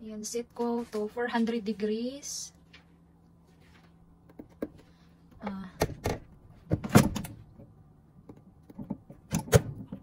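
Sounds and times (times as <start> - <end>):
control panel clicks and knocks: 5.8 - 10.0.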